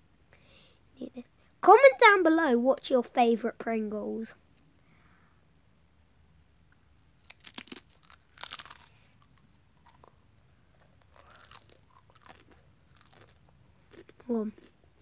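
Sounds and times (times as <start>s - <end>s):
crisp crunching: 7.2s - 14.8s.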